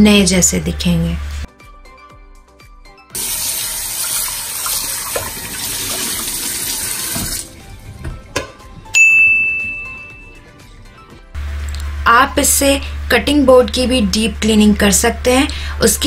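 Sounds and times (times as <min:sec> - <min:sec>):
faucet running into steel sink: 0:03.2 - 0:07.5
bright ding: 0:08.9 - 0:10.4.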